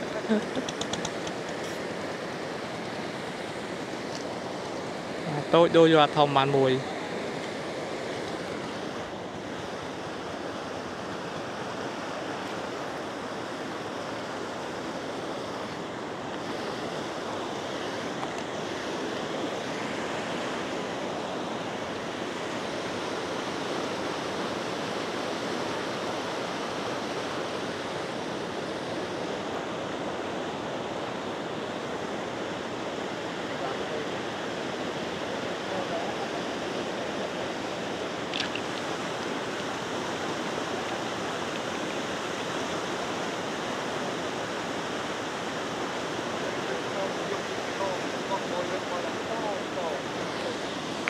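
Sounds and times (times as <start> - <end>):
floodwater rushing: 32.0 - 51.0.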